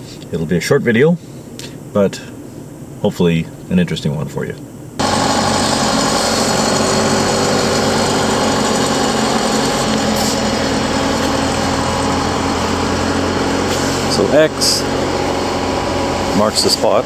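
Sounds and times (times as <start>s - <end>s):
construction machine engine idling: 5.0s - 17.0s.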